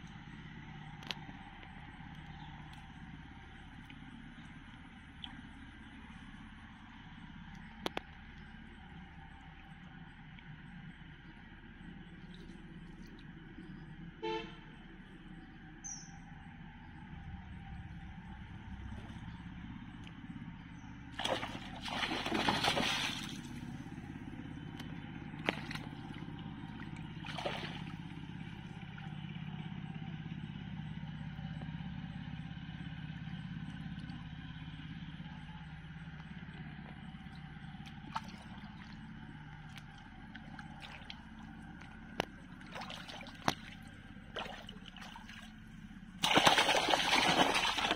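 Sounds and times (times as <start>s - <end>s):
low hum: 0.0s - 47.9s
water sloshing and splashing: 0.9s - 6.5s, 12.1s - 13.8s, 21.1s - 29.4s, 36.8s - 47.9s.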